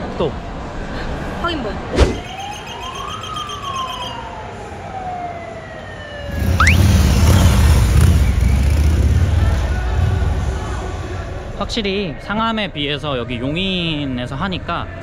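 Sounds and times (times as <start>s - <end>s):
siren chirp: 2.1s - 8.6s
police siren wailing: 2.2s - 7.7s.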